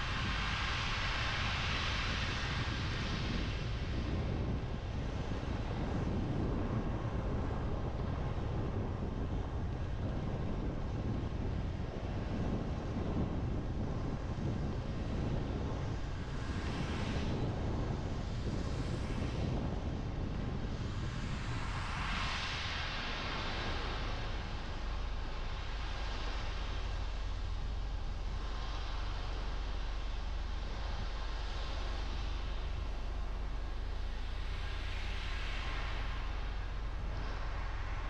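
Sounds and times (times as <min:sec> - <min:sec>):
tyre hiss on wet road: 0:00.0 - 0:04.2, 0:16.1 - 0:38.0
car engine and road rumble: 0:00.0 - 0:38.0.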